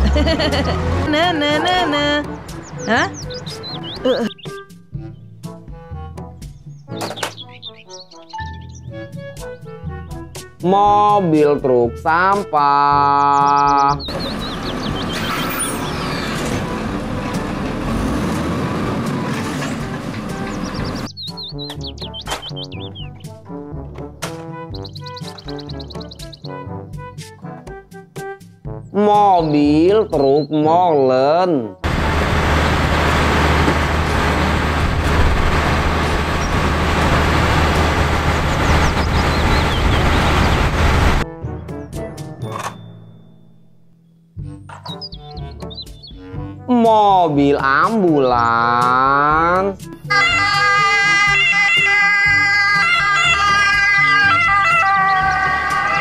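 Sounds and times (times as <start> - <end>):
garbage truck engine running: 14.0 - 21.1, 31.8 - 41.2.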